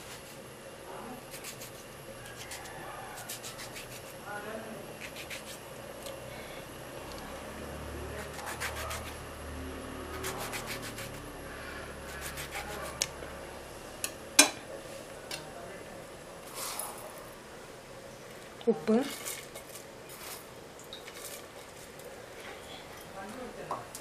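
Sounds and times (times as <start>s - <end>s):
knife cutting tomato: 12.1s - 13.2s.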